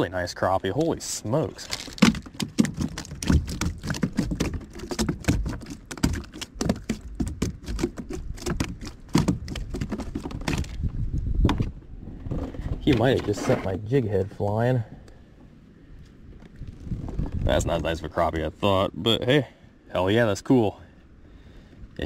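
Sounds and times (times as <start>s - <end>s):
fish flopping on plastic floor: 1.6s - 10.9s.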